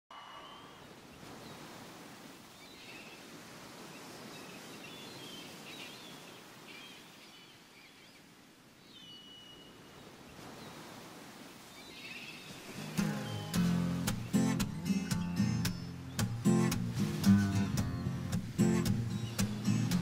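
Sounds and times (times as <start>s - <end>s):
short thin whistle: 0.1s - 0.9s
background hiss: 10.5s - 20.0s
small birds chirping: 11.7s - 20.0s.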